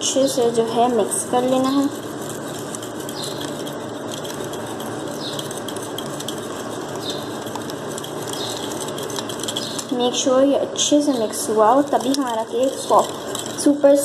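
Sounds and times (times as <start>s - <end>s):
whisk clicking against glass bowl: 1.7s - 9.9s.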